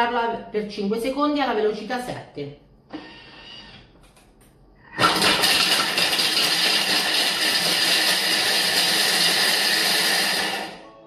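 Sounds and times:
kitchen machine chopping cheese: 0:05.0 - 0:10.8.

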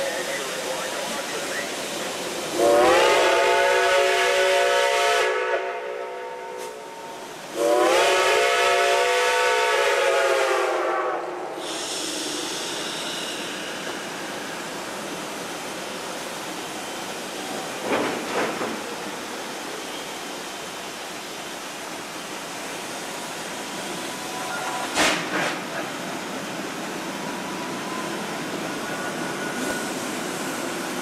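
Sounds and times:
steam hissing: 0:00.0 - 0:05.1, 0:07.1 - 0:31.0
steam locomotive chime whistle: 0:02.6 - 0:12.0, 0:27.3 - 0:30.5.

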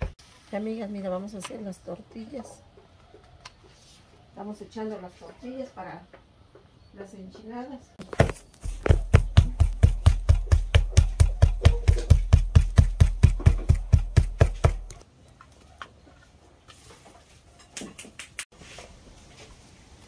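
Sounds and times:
hands slapping tortilla dough: 0:08.1 - 0:15.0.

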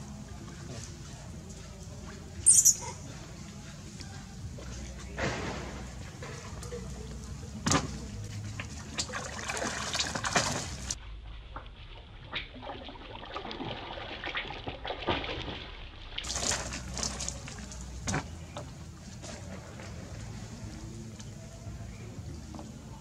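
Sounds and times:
water splashing in tank: 0:05.7 - 0:11.0, 0:11.7 - 0:18.4.

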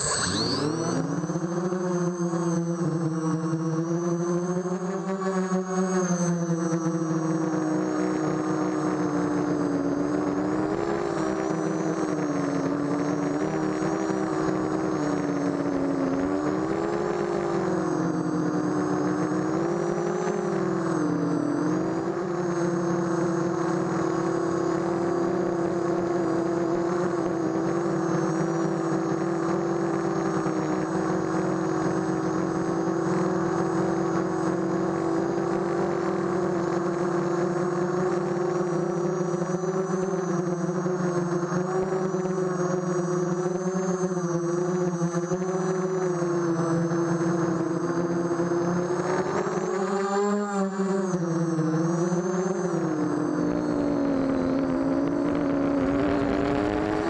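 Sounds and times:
thin high whine: 0:00.0 - 0:05.1
quadcopter motors whirring: 0:00.0 - 0:57.0.

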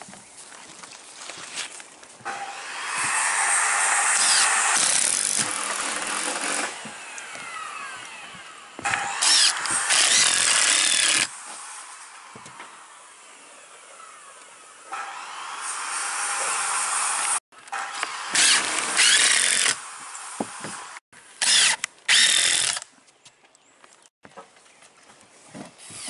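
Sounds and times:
cordless drill driving screws: 0:02.8 - 0:11.3, 0:17.1 - 0:19.8, 0:21.4 - 0:22.8.

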